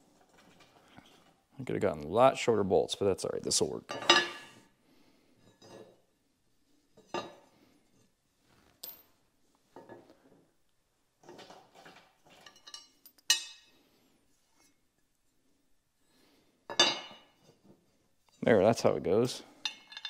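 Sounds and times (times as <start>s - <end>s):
metallic clinks and knocks: 11.3s - 13.7s, 19.6s - 20.0s.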